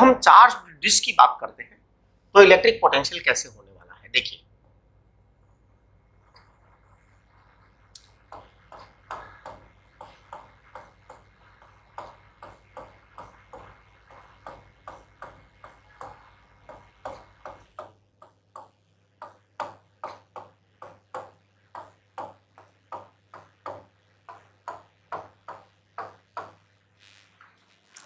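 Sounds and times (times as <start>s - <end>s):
stylus tapping on touchscreen: 7.3s - 26.8s.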